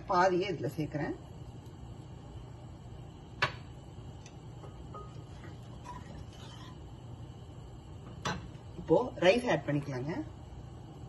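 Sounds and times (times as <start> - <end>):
gas burner low hum: 0.0 - 11.0
wooden spoon stirring: 5.0 - 6.8.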